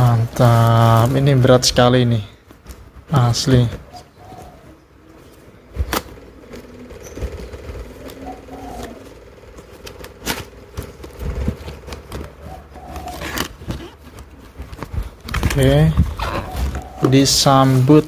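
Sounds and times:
faint steady hum: 0:00.0 - 0:18.0
cardboard rubbing and scraping: 0:05.4 - 0:18.0.

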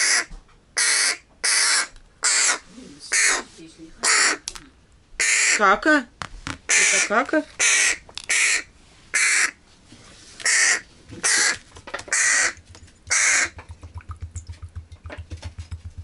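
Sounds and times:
crow chick begging caws: 0:00.0 - 0:04.4, 0:05.2 - 0:05.8, 0:06.7 - 0:09.6, 0:10.4 - 0:13.6.

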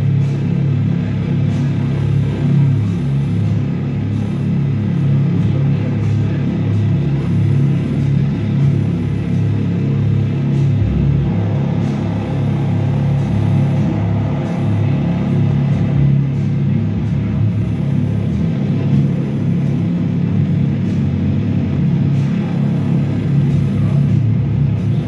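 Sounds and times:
pulsing electronic noise drone: 0:00.0 - 0:25.0.

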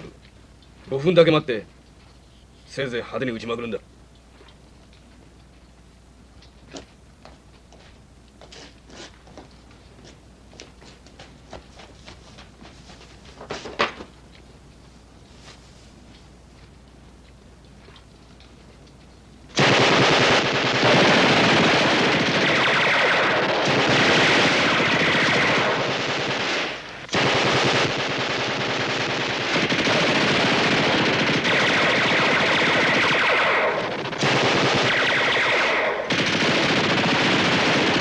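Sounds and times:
machine-gun and small-arms fire: 0:19.5 - 0:38.0.

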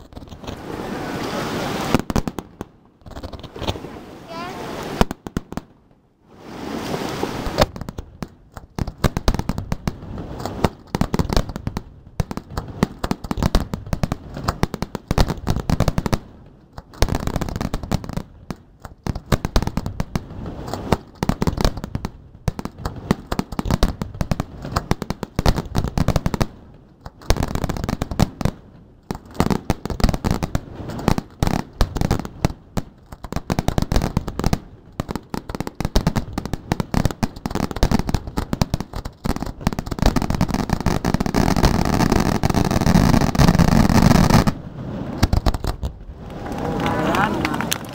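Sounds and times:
fireworks bangs and crackling: 0:00.0 - 0:47.9.

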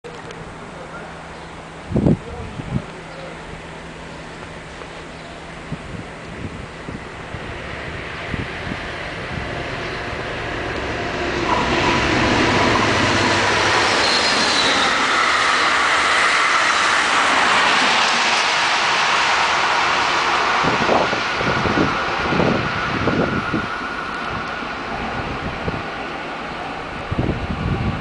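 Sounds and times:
train wheels rushing on rail: 0:00.1 - 0:28.0
faint metallic wheel squeals: 0:11.4 - 0:15.8.

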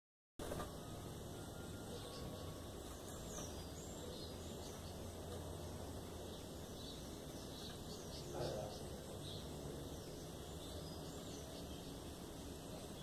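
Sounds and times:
faint bird chirps: 0:00.4 - 0:13.0
outdoor background noise: 0:00.4 - 0:13.0.

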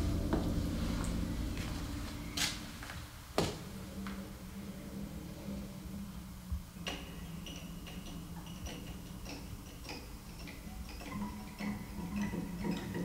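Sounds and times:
low steady hum: 0:00.0 - 0:13.0
clock ticking: 0:06.8 - 0:13.0.

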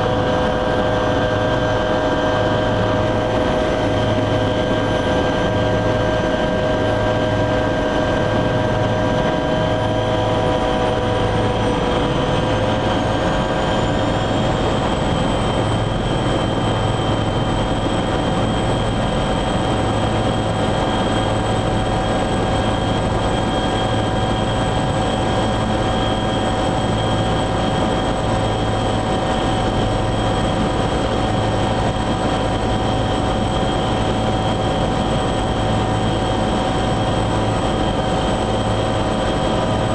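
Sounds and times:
helicopter turbine whine and rotor drone: 0:00.0 - 0:39.9.

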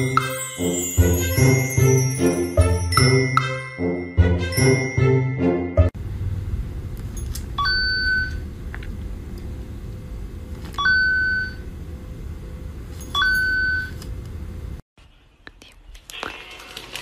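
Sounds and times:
jingly bell music: 0:00.0 - 0:06.0
low steady rumble: 0:06.0 - 0:14.8.

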